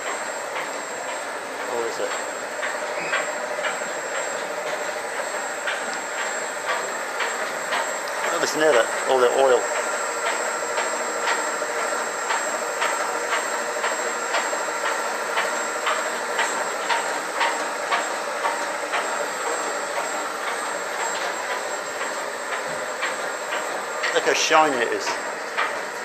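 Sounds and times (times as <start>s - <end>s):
engine room machinery hiss: 0.0s - 26.0s.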